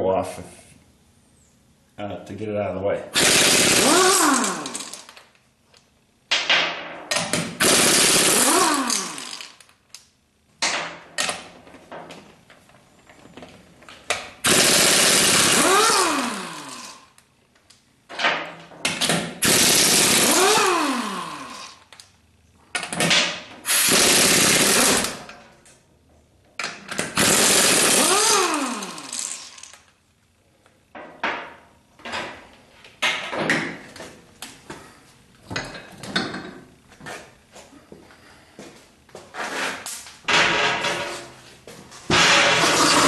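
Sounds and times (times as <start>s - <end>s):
air impact wrench hammering: 3.2s - 5.2s, 6.4s - 9.6s, 14.4s - 17.2s, 18.9s - 21.9s, 22.8s - 25.4s, 26.9s - 29.7s, 42.1s - 43.0s.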